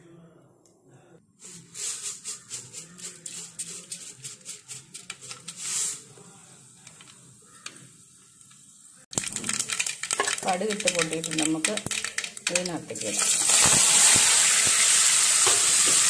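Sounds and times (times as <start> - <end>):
oil sizzling: 1.7 - 16.0
mustard seeds popping in oil: 9.1 - 16.0.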